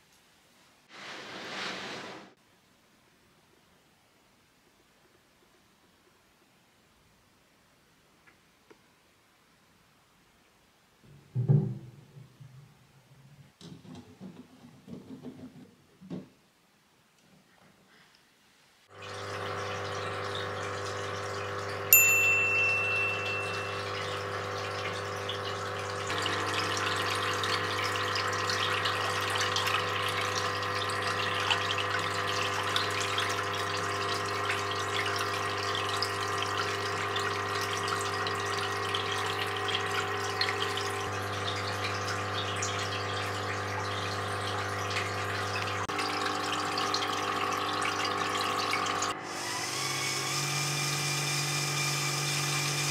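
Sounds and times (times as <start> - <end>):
water pump humming: 18.9 - 52.9
water splashing into a tank: 18.9 - 52.9
bright ding: 21.9 - 24.4.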